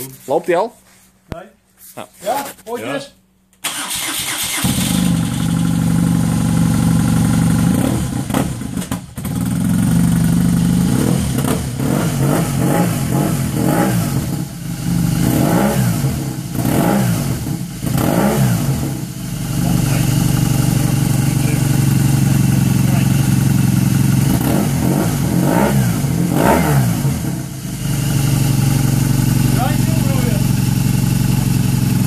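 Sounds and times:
motorcycle engine revving: 0:03.7 - 0:32.0
motorcycle engine idling: 0:04.7 - 0:12.3, 0:12.9 - 0:15.3, 0:15.9 - 0:26.4, 0:27.0 - 0:32.0.

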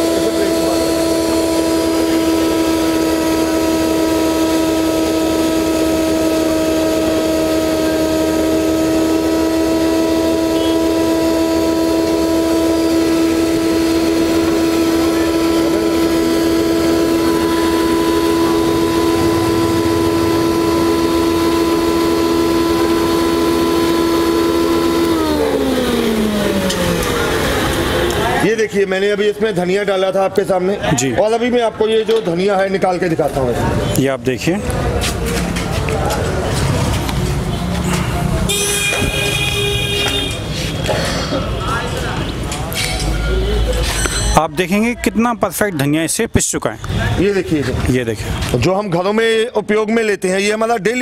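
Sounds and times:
grinder machine whining: 0:00.0 - 0:28.5.

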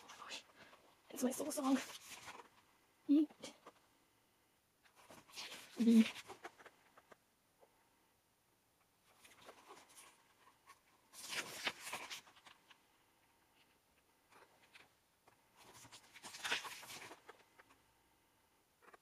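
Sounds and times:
paper pages turning: 0:01.4 - 0:02.6, 0:05.0 - 0:07.1, 0:09.1 - 0:12.8, 0:13.6 - 0:14.9, 0:15.5 - 0:17.8.

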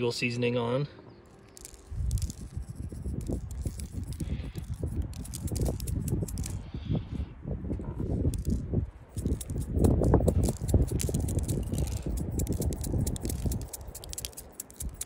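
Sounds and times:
seasoning shaker rattling: 0:01.5 - 0:06.6, 0:08.3 - 0:15.0.

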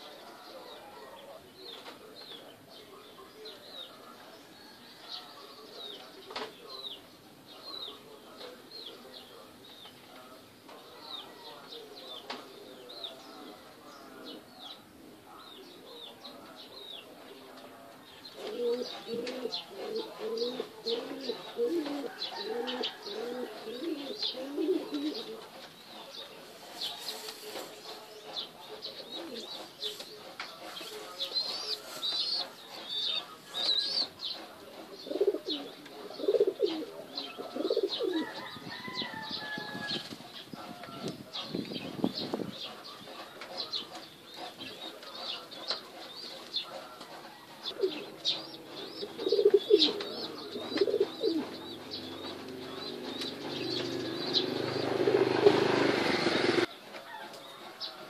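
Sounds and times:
pigeons cooing: 0:17.0 - 0:56.7.

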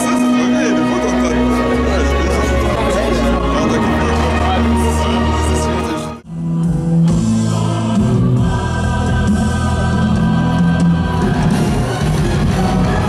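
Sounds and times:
choir-like voices holding notes: 0:00.0 - 0:06.2, 0:07.0 - 0:13.0.

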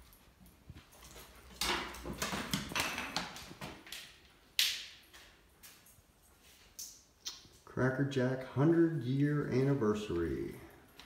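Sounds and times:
objects rustling and scraping: 0:05.1 - 0:07.1.

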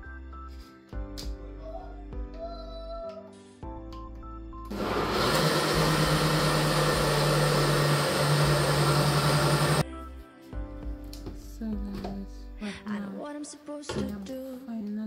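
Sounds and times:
blender grinding: 0:04.7 - 0:09.8.

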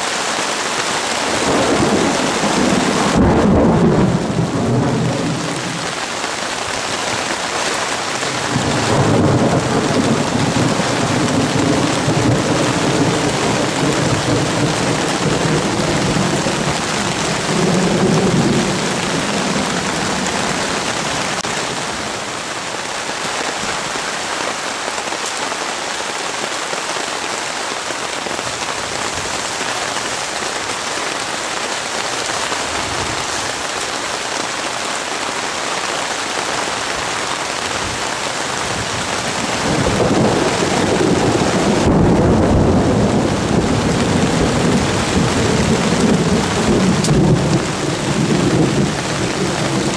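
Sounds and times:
heavy rain on water: 0:00.0 - 0:49.9
rolling thunder: 0:01.2 - 0:05.9, 0:08.3 - 0:21.7, 0:38.7 - 0:49.9.

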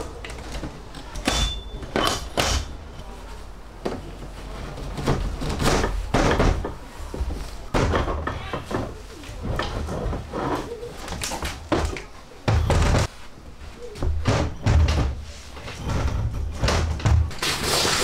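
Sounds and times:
knocks and thuds: 0:05.0 - 0:10.3, 0:11.7 - 0:13.1, 0:14.0 - 0:17.4.

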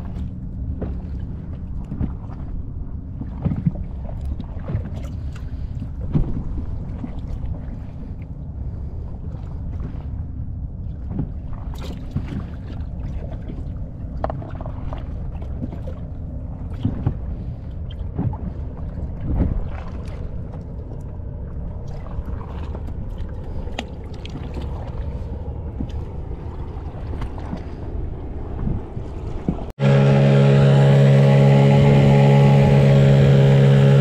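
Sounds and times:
knocks and clicks on hull: 0:00.0 - 0:08.2, 0:10.9 - 0:25.0, 0:25.7 - 0:27.8, 0:28.5 - 0:29.7
outboard motor running: 0:00.0 - 0:34.0
water and wind rumble: 0:00.0 - 0:34.0.

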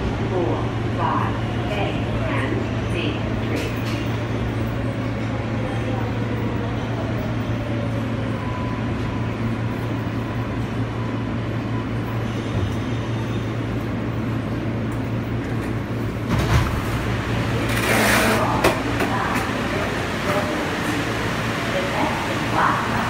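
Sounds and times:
subway car low hum: 0:00.0 - 0:23.0.

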